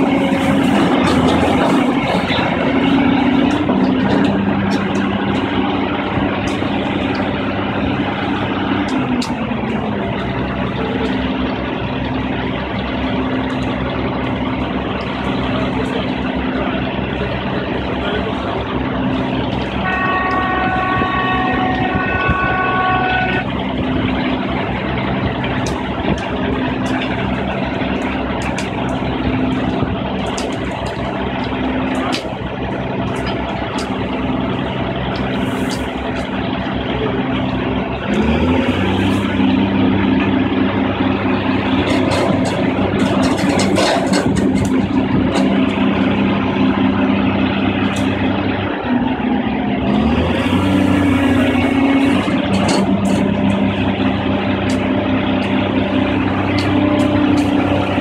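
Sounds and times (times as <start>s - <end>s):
diesel engines running: 0.0s - 58.0s
engine revving: 0.0s - 58.0s
horn-like tone: 19.8s - 23.6s.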